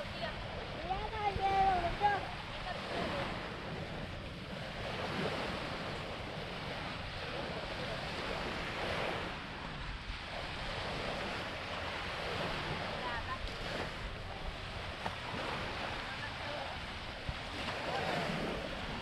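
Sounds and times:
waves washing onto sand: 0.0 - 19.0
wind rumbling on microphone: 0.0 - 19.0.

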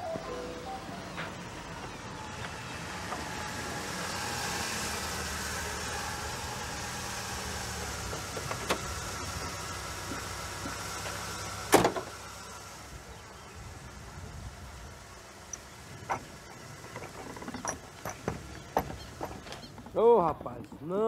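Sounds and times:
car engine idling: 0.1 - 19.9
car door shutting: 11.0 - 12.2.

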